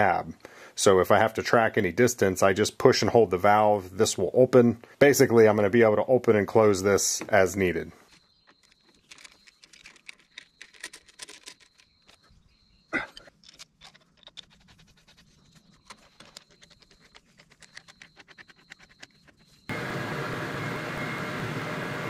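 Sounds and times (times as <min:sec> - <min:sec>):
diesel engine running: 0:19.7 - 0:22.0.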